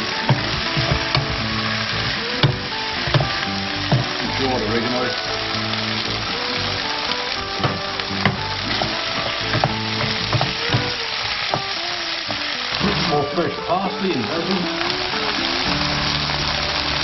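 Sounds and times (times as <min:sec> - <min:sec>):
food sizzling in hot oil: 0:00.0 - 0:17.0
spoon knocking against pan: 0:00.2 - 0:01.5, 0:02.4 - 0:04.2, 0:07.5 - 0:12.4.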